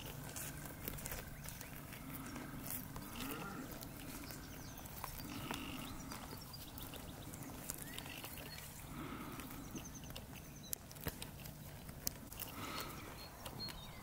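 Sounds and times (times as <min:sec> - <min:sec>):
sheep cropping grass: 0:00.0 - 0:14.0
faint sheep bleats: 0:05.2 - 0:06.3.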